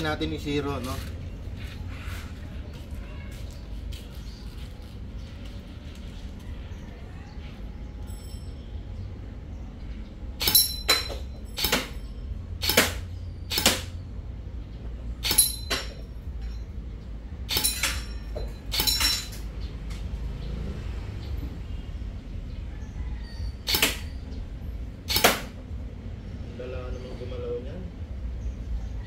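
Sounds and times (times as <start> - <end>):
airsoft rifle shots: 10.4 - 12.0, 12.6 - 14.0, 15.2 - 16.0, 17.5 - 19.3, 23.6 - 24.1, 25.1 - 25.6.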